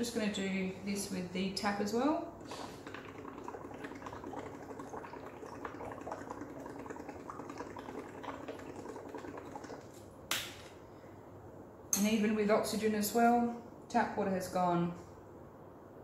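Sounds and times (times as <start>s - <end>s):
bubbling through a straw in water: 2.1s - 10.1s.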